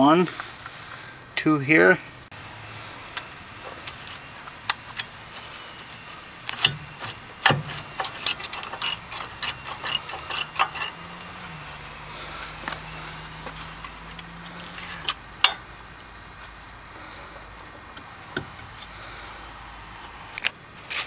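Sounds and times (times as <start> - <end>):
brake caliper clicking and clanking: 3.1 - 19.3.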